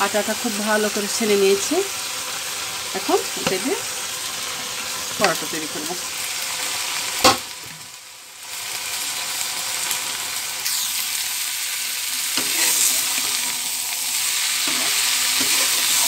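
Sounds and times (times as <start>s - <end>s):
beans sizzling in oil: 0.0s - 16.0s
metal spatula stirring: 12.4s - 13.4s, 14.6s - 16.0s.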